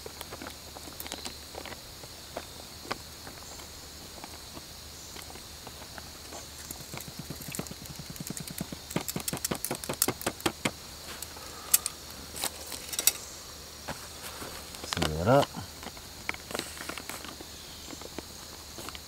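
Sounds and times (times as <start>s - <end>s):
crickets chirping: 0.0s - 19.0s
footsteps on dry grass: 13.8s - 15.1s.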